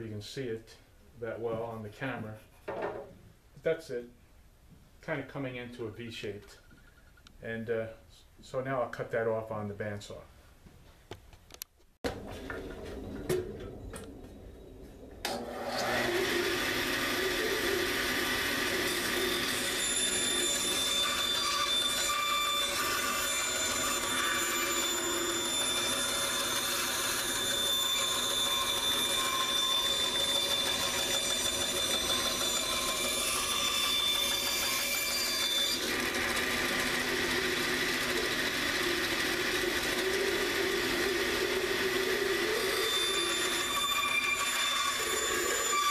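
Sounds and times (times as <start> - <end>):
bandsaw cutting wood: 15.3 - 45.9.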